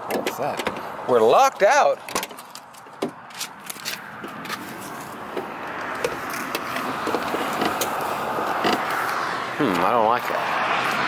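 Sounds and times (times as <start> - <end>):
car passing: 3.1 - 11.0.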